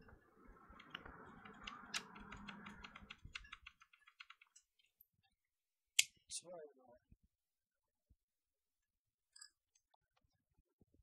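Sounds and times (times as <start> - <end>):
small plastic clicks: 0.7 - 5.0.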